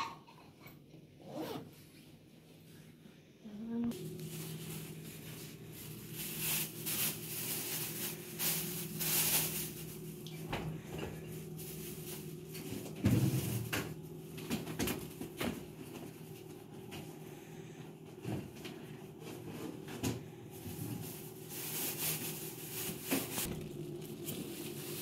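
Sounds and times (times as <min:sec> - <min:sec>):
steady low hum: 0:02.3 - 0:25.0
household items rustling: 0:03.9 - 0:25.0.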